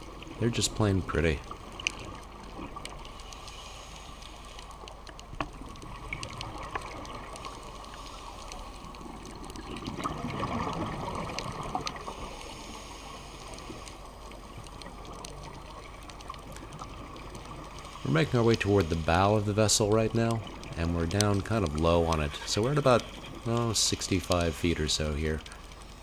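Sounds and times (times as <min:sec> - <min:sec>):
faint clicks: 0:00.0 - 0:26.0
muffled underwater water rush: 0:00.0 - 0:26.0
regulator bubbles gurgling: 0:04.9 - 0:26.0.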